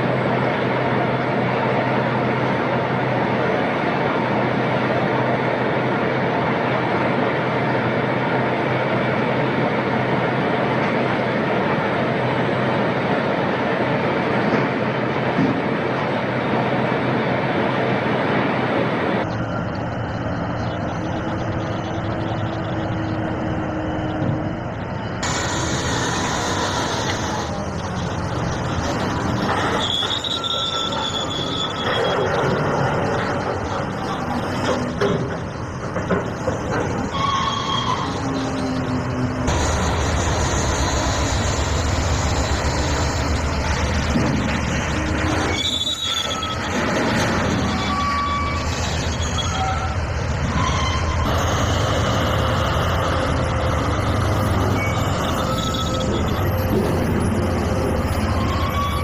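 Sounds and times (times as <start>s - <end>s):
heavy mining machinery working: 0.0s - 59.0s
clatter of machinery and rock: 28.6s - 37.2s.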